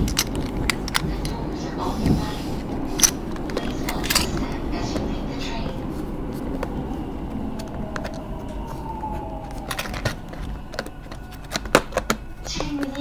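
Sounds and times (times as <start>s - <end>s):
faint whine: 0.0s - 13.0s
subway train rumble: 0.0s - 13.0s
plastic box clicks: 9.6s - 13.0s.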